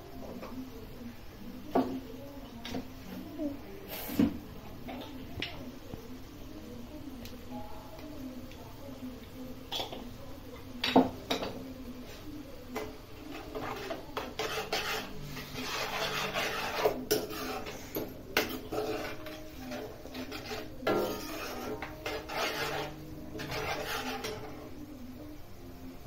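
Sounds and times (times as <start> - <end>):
ladle scraping metal pan: 13.3 - 24.7.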